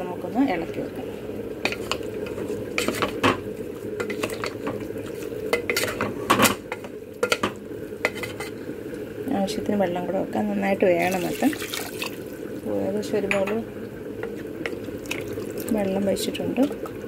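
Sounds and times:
spoon scraping metal pot: 0:02.7 - 0:03.2, 0:07.2 - 0:08.6.

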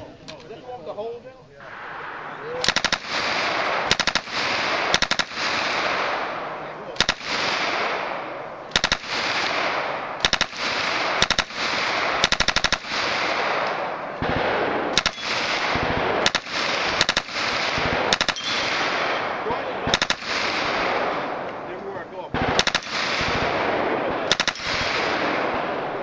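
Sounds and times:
submachine gun bursts: 0:02.6 - 0:03.0, 0:03.9 - 0:04.3.

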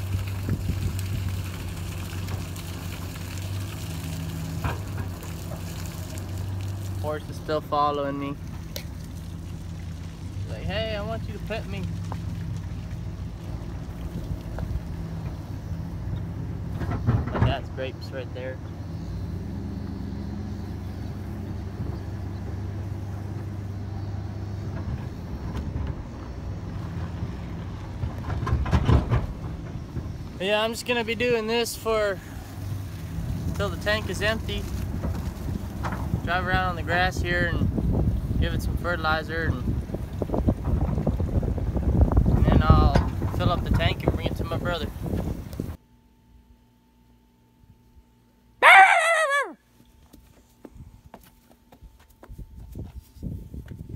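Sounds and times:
liquid streaming and splashing: 0:00.0 - 0:16.0, 0:31.8 - 0:36.3
pickup truck engine running: 0:00.0 - 0:45.8.

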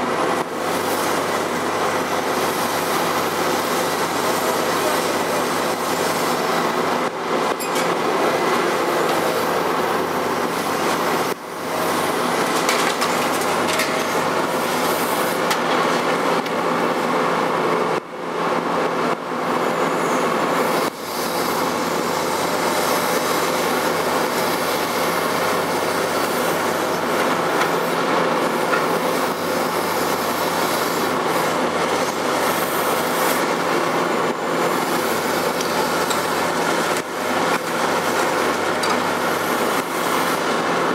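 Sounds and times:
diesel engine under load: 0:00.0 - 0:40.9.

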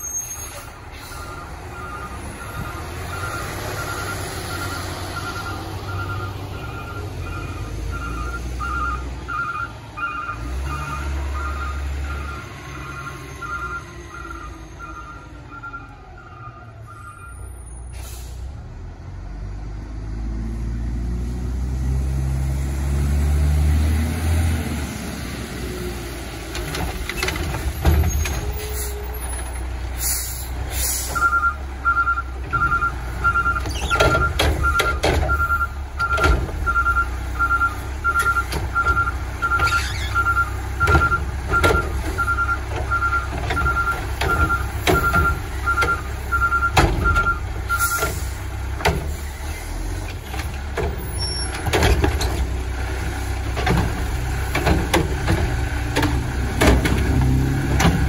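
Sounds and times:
garbage truck diesel engine: 0:00.0 - 0:58.0
two-tone warning beep: 0:01.1 - 0:17.5, 0:31.1 - 0:48.2
air brake hisses: 0:17.8 - 0:18.5, 0:30.0 - 0:31.2.

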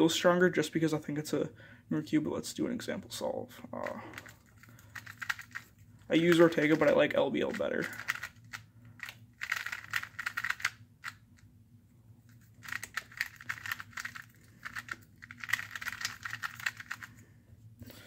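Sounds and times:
puzzle cube plastic clicks: 0:03.8 - 0:05.7, 0:06.3 - 0:11.5, 0:12.6 - 0:17.2.

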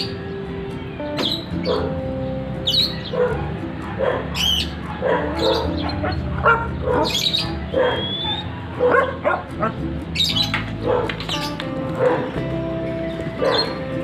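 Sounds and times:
dog barking and yipping: 0:01.2 - 0:02.0, 0:02.7 - 0:12.4, 0:13.4 - 0:13.9.

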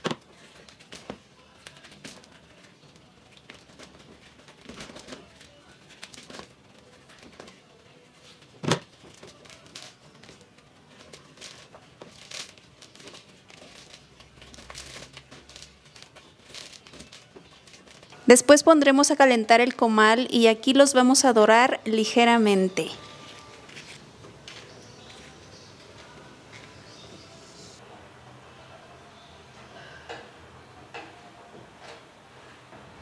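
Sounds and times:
crinkling of brittle skins: 0:00.0 - 0:18.3.

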